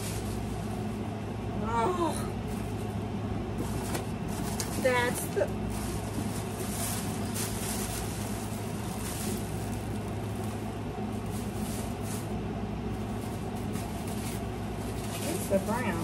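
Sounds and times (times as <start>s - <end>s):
packaging rustling: 0.0s - 1.1s, 3.6s - 16.0s
steady low hum: 0.0s - 16.0s.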